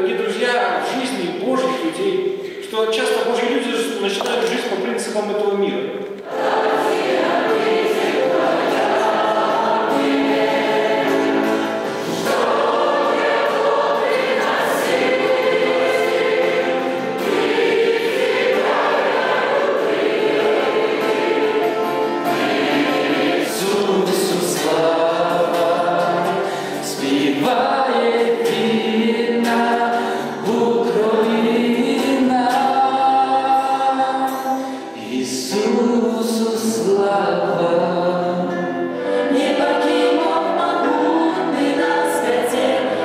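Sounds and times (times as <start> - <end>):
congregation singing a hymn: 6.2 - 43.0.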